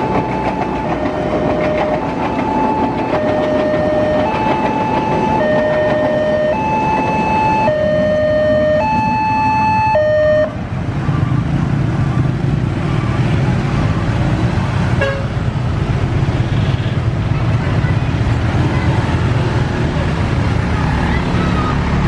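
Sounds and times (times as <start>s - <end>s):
two-tone crossing alarm: 0.0s - 10.6s
motorcycle and car engines: 0.0s - 22.0s.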